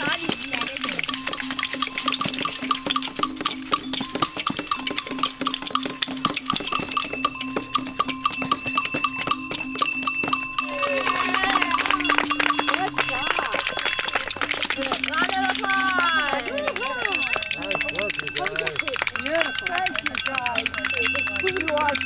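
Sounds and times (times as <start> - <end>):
bells: 0.0 - 22.0
shakers: 0.0 - 22.0.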